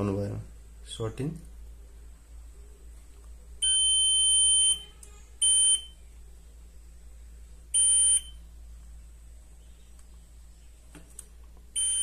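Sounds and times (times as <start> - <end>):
multimeter high-pitched beeps: 3.6 - 6.0, 7.8 - 8.4, 11.8 - 12.0.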